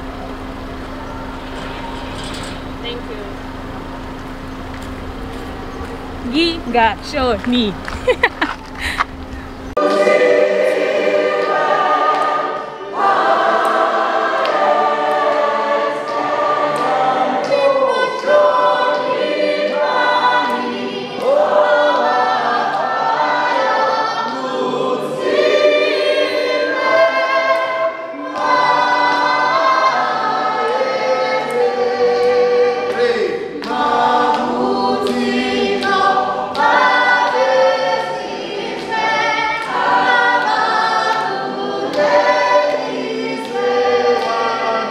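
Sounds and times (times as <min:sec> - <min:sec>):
group singing hymn in harmony: 0:09.6 - 0:44.9.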